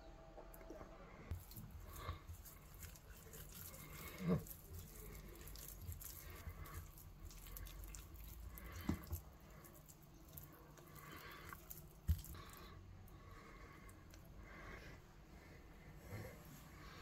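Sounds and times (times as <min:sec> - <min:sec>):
hands squishing and patting meat: 0:01.3 - 0:12.7.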